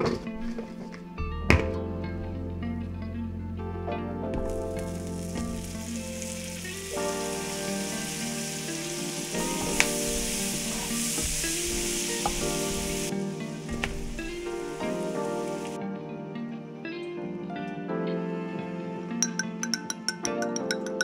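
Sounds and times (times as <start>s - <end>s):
butter sizzling in frying pan: 4.4s - 15.8s
wooden spatula stirring: 9.3s - 13.1s
mushrooms dropping into pan: 13.7s - 15.7s.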